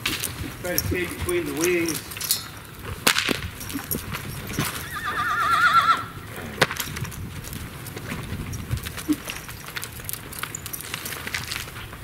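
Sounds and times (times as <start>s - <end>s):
hoofbeats on dirt: 0.0s - 12.0s
sharp crack: 1.0s - 3.6s, 6.6s - 7.2s
horse whinnying: 4.6s - 6.6s.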